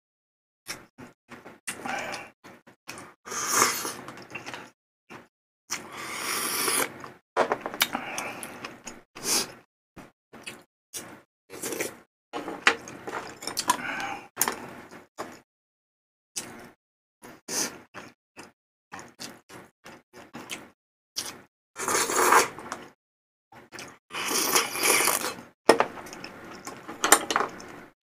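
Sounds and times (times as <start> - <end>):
slurping: 2.9 - 4.7, 5.7 - 7.0, 10.5 - 12.0, 20.2 - 22.9, 23.8 - 25.4.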